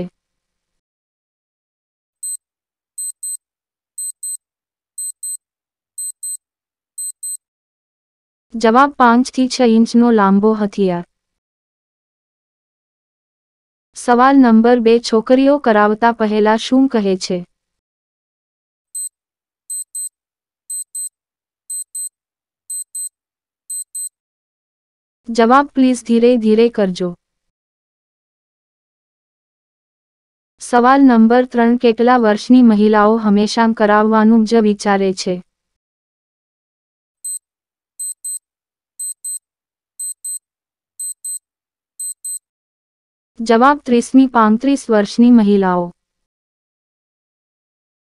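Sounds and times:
clock ticking: 3.0 - 3.4, 4.0 - 4.4, 5.0 - 5.4, 6.0 - 6.4, 7.0 - 7.4, 19.7 - 20.1, 20.7 - 21.1, 21.7 - 22.1, 22.7 - 23.1, 23.7 - 24.1, 38.0 - 38.4, 39.0 - 39.4, 40.0 - 40.4, 41.0 - 41.4, 42.0 - 42.4.

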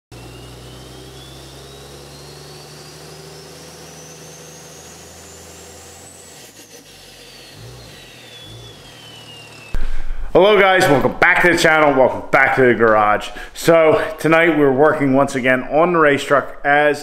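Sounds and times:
thin rising whistle: 0.2 - 10.3.

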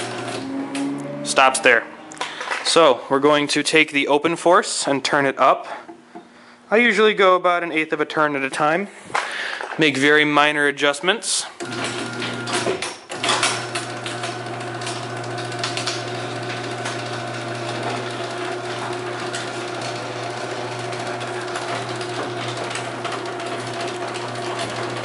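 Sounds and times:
garage door opener clicks: 0.0 - 1.0, 11.6 - 25.0
garage door opener running: 0.0 - 2.4, 11.6 - 25.0.

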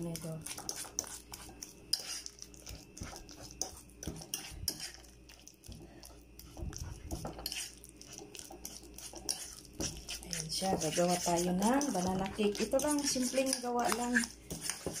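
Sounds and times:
fork mashing bananas in bowl: 0.0 - 15.0.

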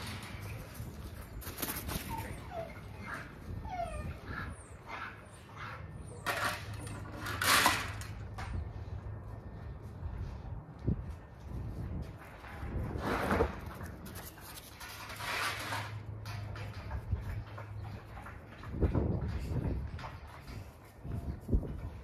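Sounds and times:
dog whimpering: 2.0 - 4.7.

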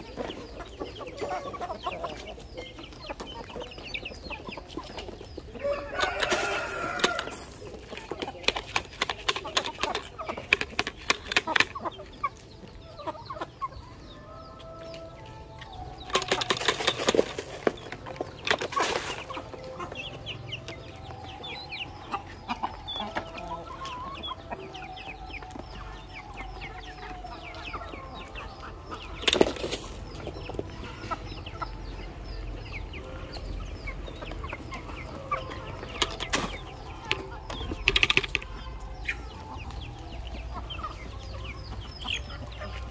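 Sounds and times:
beaks pecking grain taps: 8.2 - 11.9, 36.0 - 38.7.

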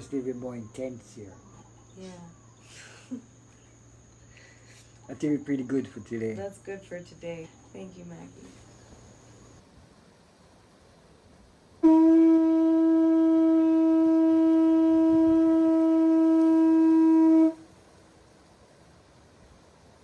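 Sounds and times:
conch shell trumpet note: 11.8 - 17.7.

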